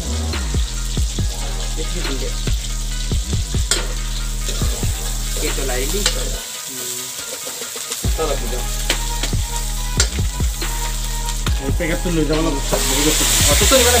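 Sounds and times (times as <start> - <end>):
steady low hum: 0.0 - 6.4
onions sizzling in hot oil: 0.7 - 14.0
metal ladle scraping wok: 3.7 - 11.5.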